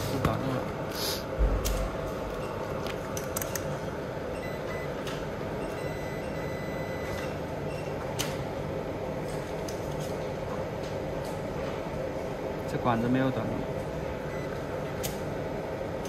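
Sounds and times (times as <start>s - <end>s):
workbench room noise: 0.0s - 16.0s.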